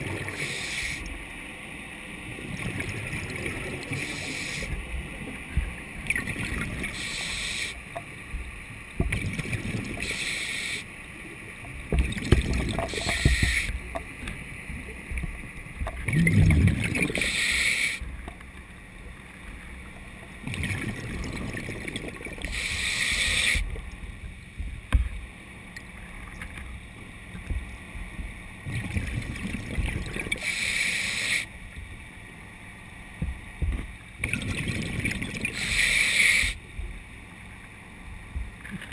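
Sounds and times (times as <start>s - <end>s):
exhaled air bubbling: 0.0s - 1.2s, 2.0s - 18.4s, 19.8s - 25.1s, 28.5s - 31.8s, 33.2s - 37.0s
diver breathing through regulator: 0.3s - 1.0s, 3.9s - 4.8s, 6.9s - 7.8s, 10.0s - 10.9s, 12.9s - 13.8s, 17.2s - 18.1s, 22.4s - 23.7s, 30.4s - 31.5s, 35.5s - 36.6s
low underwater rumble: 4.7s - 7.0s, 18.0s - 30.3s, 36.5s - 38.9s.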